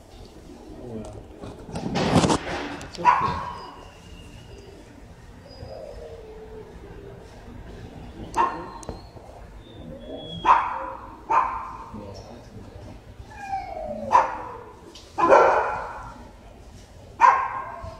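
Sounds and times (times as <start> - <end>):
dogs barking with echo: 3.0 - 3.8, 8.3 - 8.8, 10.1 - 11.9, 13.7 - 16.2, 17.2 - 17.9.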